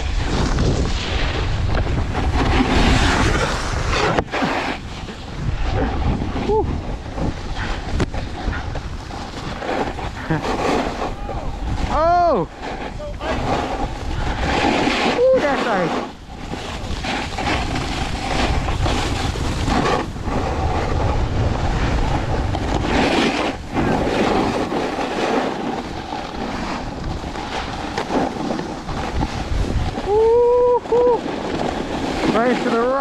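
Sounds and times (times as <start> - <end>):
snowboard scraping over icy snow: 0.0 - 33.0
wind buffeting microphone: 0.0 - 33.0
person calling out: 15.2 - 15.8.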